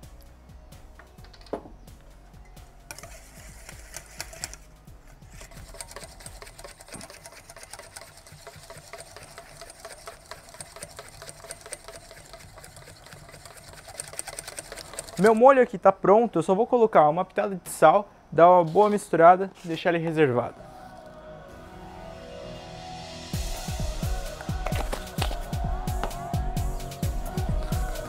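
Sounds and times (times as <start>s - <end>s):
whisk clicking in metal bowl: 5.3s - 15.5s.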